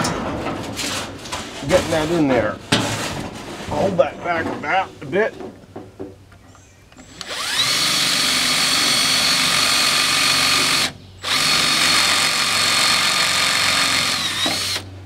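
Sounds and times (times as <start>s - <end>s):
cordless drill motor whining: 7.0s - 14.9s.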